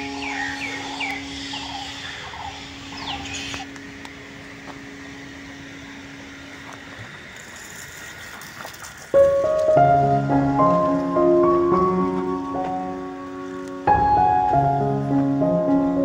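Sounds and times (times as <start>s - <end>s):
high squealing animal calls: 0.0s - 3.7s
faint hum: 0.0s - 16.0s
steady hiss: 0.0s - 16.0s.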